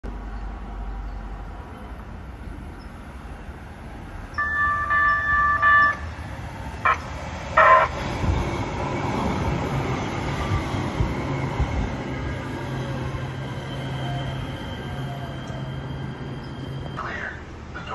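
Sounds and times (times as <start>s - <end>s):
train wheel and motor noise: 0.1s - 17.9s
short horn signals: 4.4s - 6.1s
train two-tone horn: 4.4s - 6.2s, 6.8s - 8.0s.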